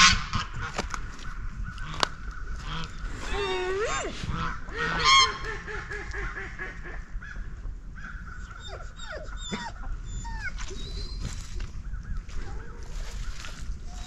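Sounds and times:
peafowl honking: 4.3s - 7.2s.

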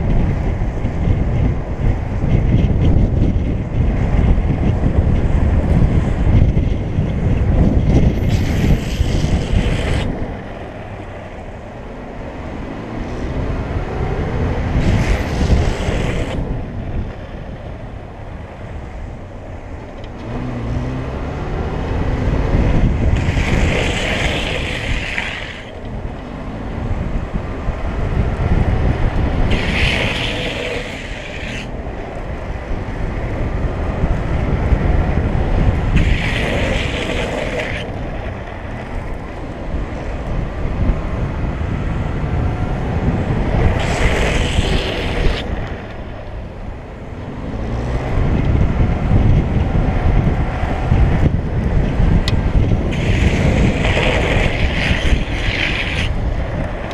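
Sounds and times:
road rumble and wind noise: 0.0s - 56.9s
wheels sliding on asphalt: 0.0s - 56.9s
hissing rush: 23.1s - 25.9s, 29.3s - 31.8s, 35.7s - 38.0s, 43.5s - 46.0s.

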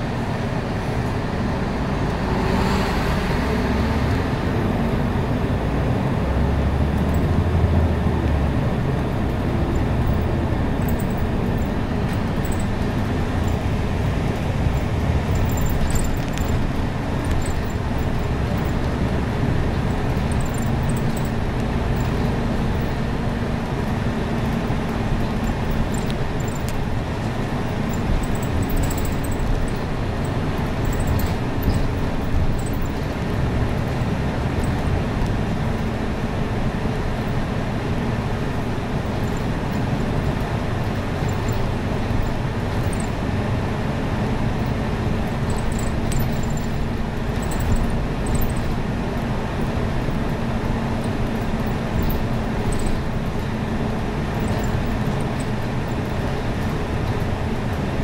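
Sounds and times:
bus engine and road drone: 0.0s - 58.0s
faint rattles: 9.6s - 18.9s, 24.4s - 33.2s.

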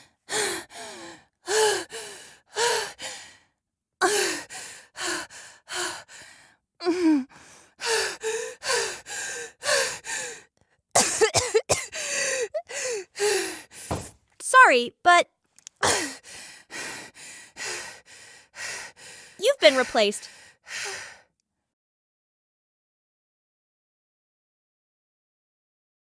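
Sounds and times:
woman coughing and gasping: 11.0s - 12.7s, 15.8s - 16.1s.

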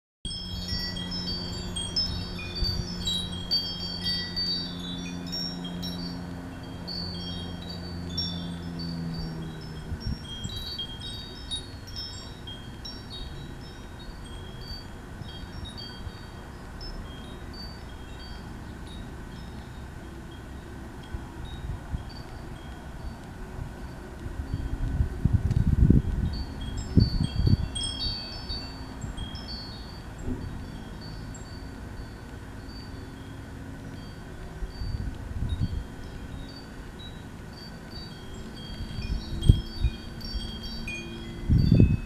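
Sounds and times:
low steady hum: 0.3s - 42.0s
wind chimes tinkling: 0.3s - 42.0s.

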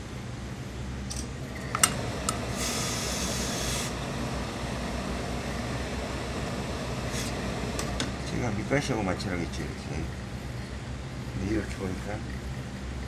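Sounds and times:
steady low hum: 0.0s - 13.0s
steam iron hissing: 2.4s - 4.1s, 6.8s - 7.8s.

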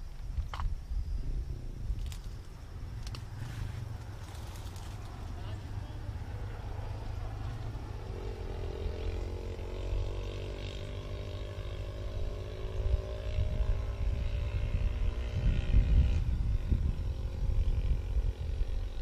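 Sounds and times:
distant engine droning: 1.2s - 19.0s
low rumbling microphone noise: 12.1s - 19.0s.

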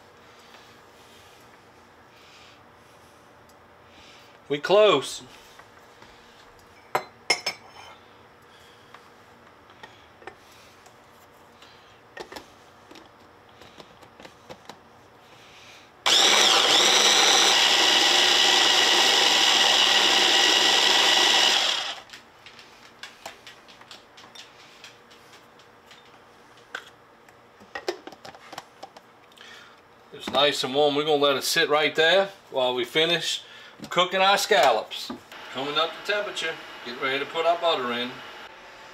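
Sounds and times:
immersion blender motor running: 16.1s - 22.1s, 35.4s - 38.9s.

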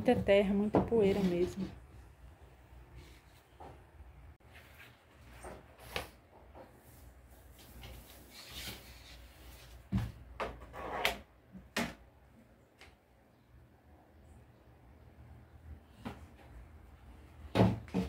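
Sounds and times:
knocking against wooden wardrobe: 17.5s - 18.0s.

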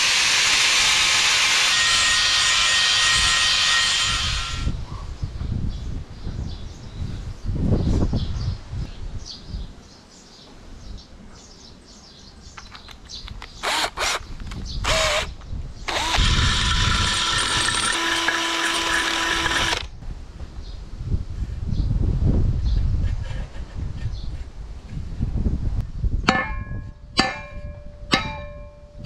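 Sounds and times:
cordless drill running: 0.0s - 4.7s, 13.6s - 14.2s, 14.8s - 15.3s, 15.9s - 19.9s.

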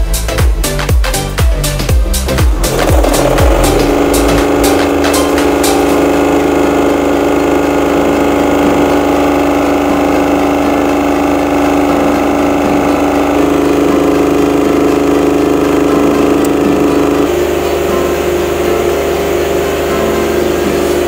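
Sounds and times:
diesel generator running: 0.0s - 21.0s.

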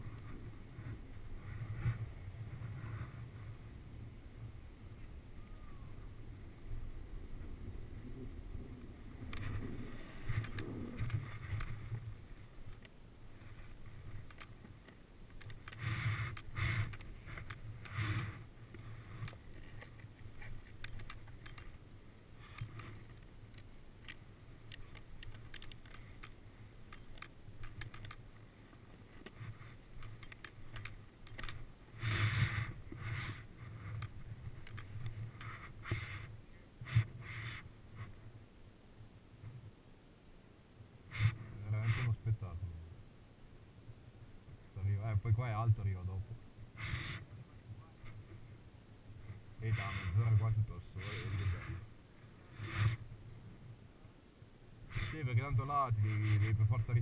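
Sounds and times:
ski clothing rustling: 9.2s - 38.3s, 51.0s - 53.2s
snowboard scraping over snow: 15.8s - 19.2s, 31.9s - 34.5s.

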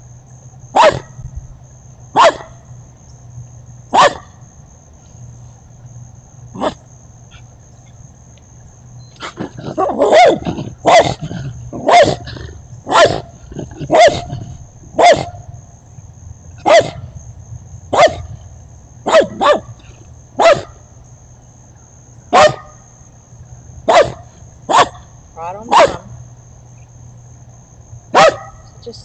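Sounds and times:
dog barking: 0.7s - 1.2s, 2.2s - 2.6s, 3.9s - 4.3s, 6.6s - 6.8s, 9.2s - 11.2s, 11.8s - 15.4s, 16.6s - 17.1s, 17.9s - 18.4s, 19.0s - 19.8s, 20.4s - 20.8s, 22.3s - 22.8s, 23.9s - 25.1s, 25.7s - 26.1s, 28.1s - 28.8s.

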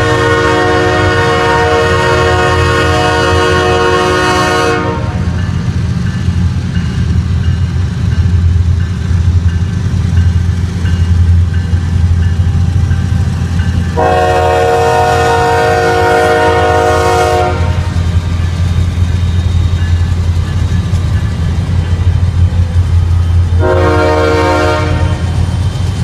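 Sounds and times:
locomotive air horn blast: 0.0s - 5.4s, 14.0s - 18.0s, 23.5s - 25.4s
diesel locomotives rumbling: 0.0s - 26.0s.

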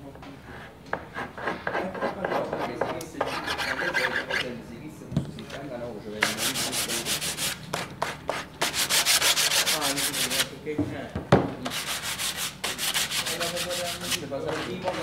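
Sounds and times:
sandpaper scratching on wood: 1.2s - 4.5s, 6.2s - 10.5s, 11.7s - 15.0s.

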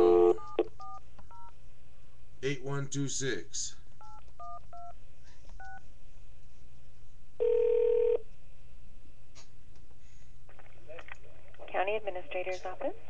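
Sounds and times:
telephone ringing tone: 0.0s - 1.5s, 7.4s - 8.2s.

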